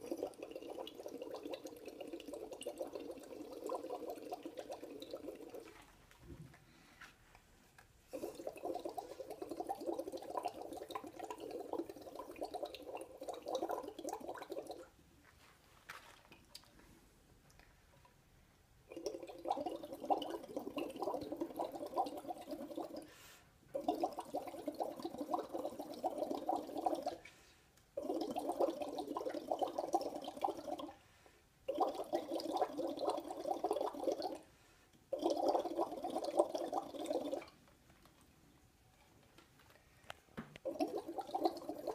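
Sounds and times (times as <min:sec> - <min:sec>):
breath bubbling through liquid: 0:00.0 - 0:05.9, 0:08.1 - 0:15.0, 0:18.9 - 0:27.3, 0:28.0 - 0:31.0, 0:31.6 - 0:37.6, 0:40.6 - 0:41.9.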